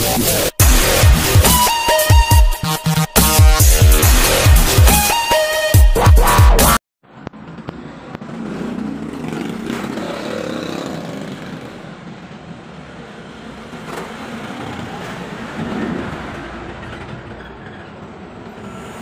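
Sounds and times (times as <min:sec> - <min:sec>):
electronic intro music: 0:00.0 - 0:06.8
passing road traffic: 0:07.0 - 0:19.0.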